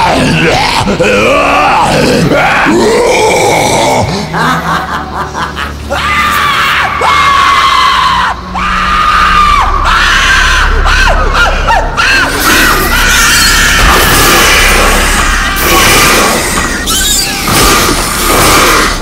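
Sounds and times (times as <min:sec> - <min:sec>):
high voice shrieking and wailing: 0:06.1 - 0:19.0.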